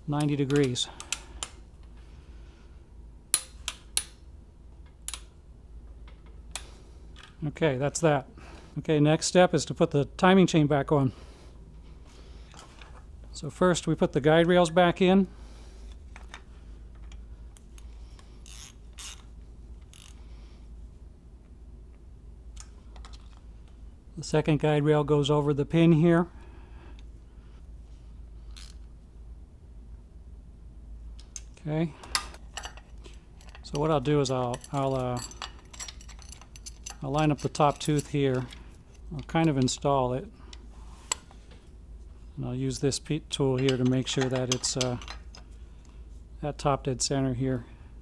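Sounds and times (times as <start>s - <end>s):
engine parts scraping and clicking: 32.0s - 39.9s, 43.4s - 45.5s.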